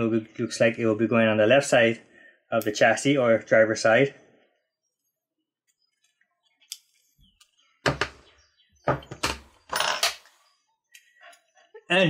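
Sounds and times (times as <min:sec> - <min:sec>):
sharp plastic knocks: 0:07.8 - 0:08.3.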